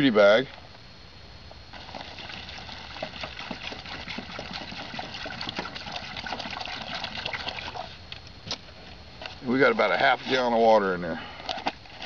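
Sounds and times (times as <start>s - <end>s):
water pouring and splashing: 1.7s - 8.0s.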